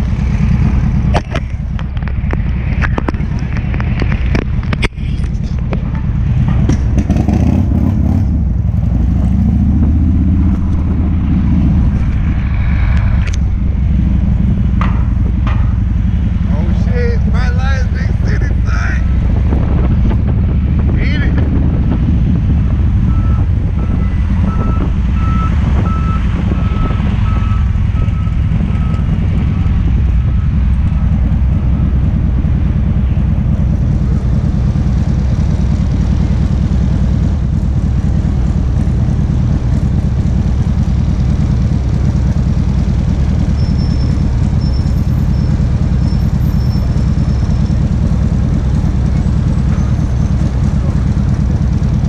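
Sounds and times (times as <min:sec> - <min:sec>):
motorcycle engine idling: 0:00.0 - 0:21.0, 0:27.9 - 0:52.0
reversing beeper: 0:22.6 - 0:31.2.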